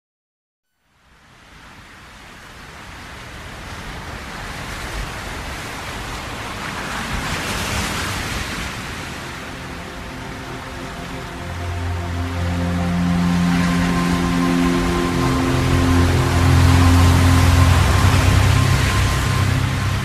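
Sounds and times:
soft rushing noise: 8.0s - 20.0s.

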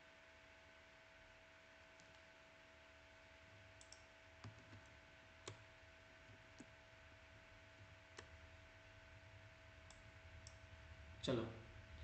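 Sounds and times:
computer mouse clicks: 2.0s - 2.3s, 3.8s - 5.6s, 6.2s - 6.7s, 8.1s - 8.4s, 9.8s - 10.6s.

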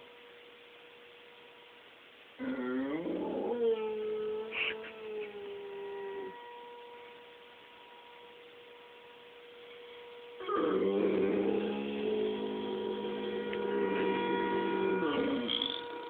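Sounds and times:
faint steady tone: 0.0s - 16.0s
dog howling: 2.4s - 7.0s, 10.4s - 16.0s.

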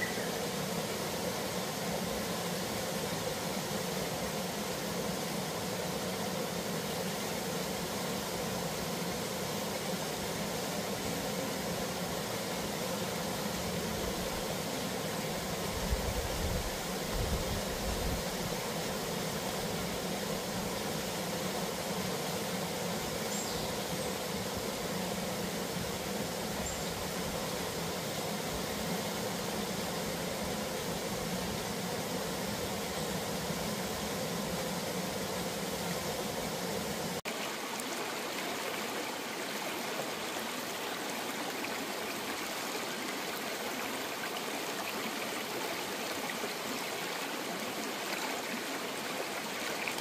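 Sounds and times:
faint high chirps: 0.0s - 0.4s
waterfall rushing into pool: 0.0s - 50.0s.

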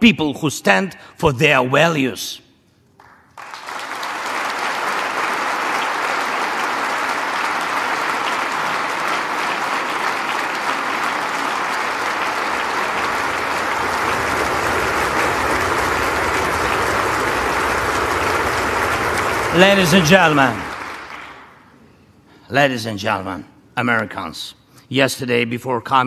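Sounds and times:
large audience applauding: 3.0s - 21.7s.

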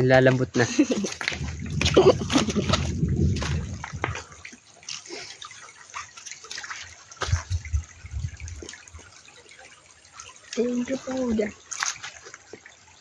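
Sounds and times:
water splashing and sloshing: 0.0s - 13.0s
low thumps: 1.2s - 4.5s.

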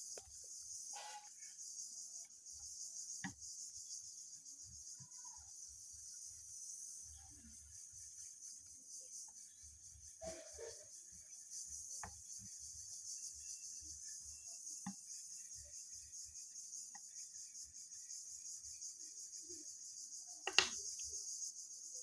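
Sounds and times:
insects chirring: 0.0s - 22.0s
faint taps and clicks: 20.5s - 20.8s.

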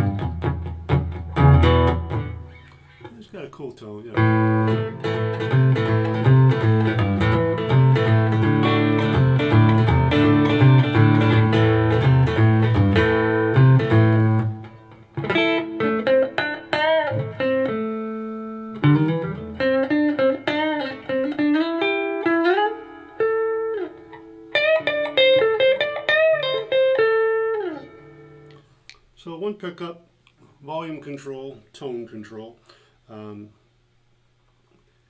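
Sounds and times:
electric guitar lead line: 0.0s - 3.1s, 4.2s - 28.6s
strummed electric guitar riff: 0.0s - 28.6s.

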